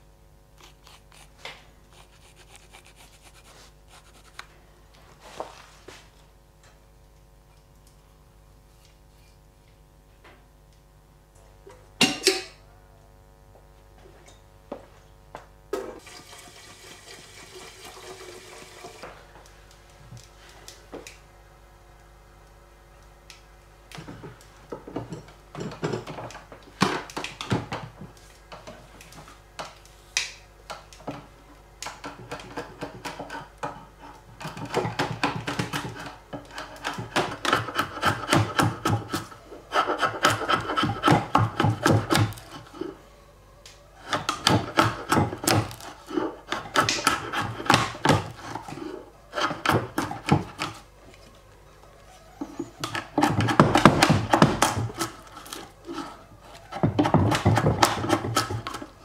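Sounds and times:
drawknife shaving wood: 0:00.6 - 0:04.4, 0:32.1 - 0:43.0, 0:44.0 - 0:50.8, 0:52.8 - 0:59.0.

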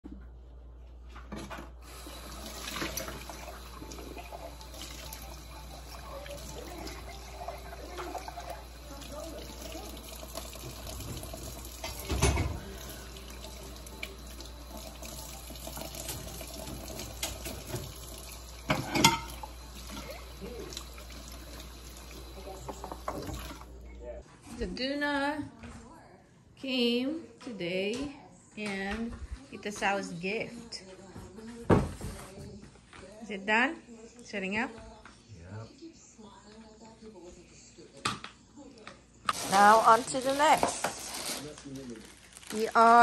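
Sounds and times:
faucet running into metal sink: 0:01.8 - 0:23.7
dishware knocking against sink: 0:10.9 - 0:12.8, 0:18.7 - 0:20.2, 0:22.6 - 0:23.5.

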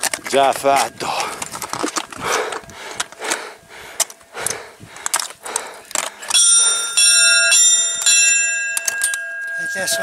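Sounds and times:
bronze bell ringing: 0:06.3 - 0:10.0.

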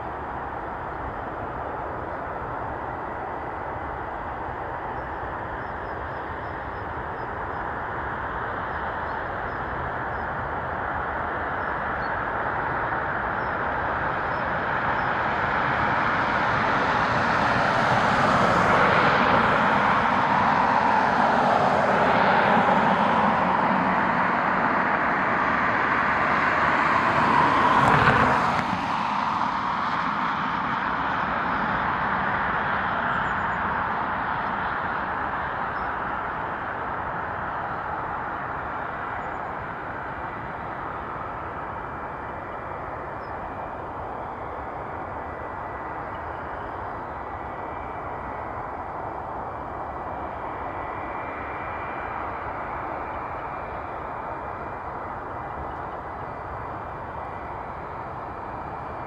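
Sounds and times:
jet airliner flying past: 0:00.0 - 0:59.0.

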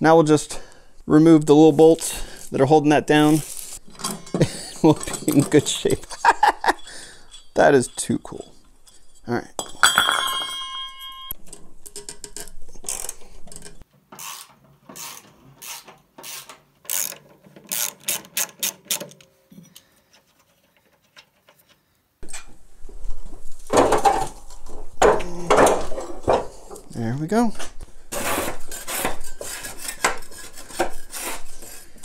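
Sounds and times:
rough scraping and handling noise: 0:01.4 - 0:18.0, 0:19.5 - 0:32.0.

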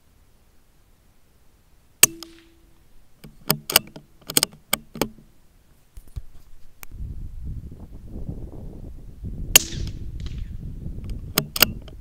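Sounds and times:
rifle shot: 0:02.0 - 0:02.6, 0:09.5 - 0:10.6.

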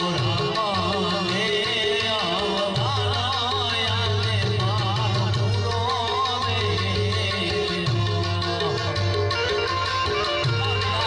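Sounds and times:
man singing into microphone: 0:00.0 - 0:11.0
light drum beat: 0:02.5 - 0:11.0.

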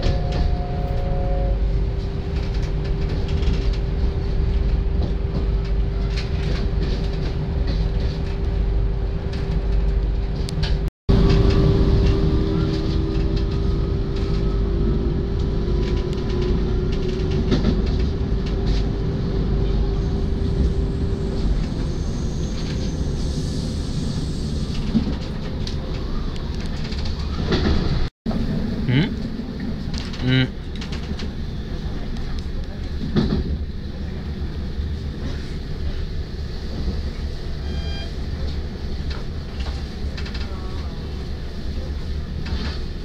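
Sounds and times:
rising train whine: 0:00.0 - 0:43.0
train wheels rumbling on rail: 0:00.0 - 0:43.0.

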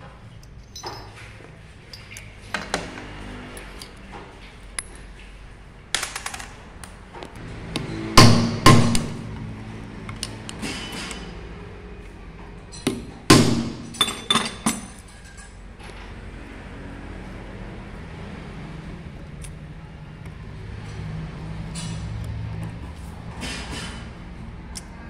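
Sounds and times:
metal tools clinking on metal housing: 0:00.3 - 0:02.7, 0:12.7 - 0:15.6.

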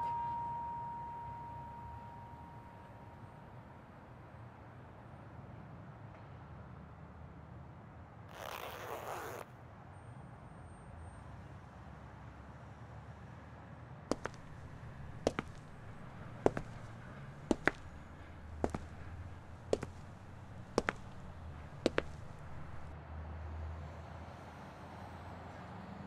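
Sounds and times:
high heels on hard floor: 0:14.1 - 0:22.9.

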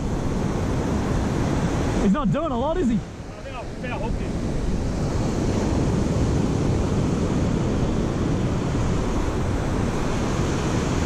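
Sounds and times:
surf breaking on beach: 0:00.0 - 0:11.0
wind buffeting microphone: 0:00.0 - 0:11.0.

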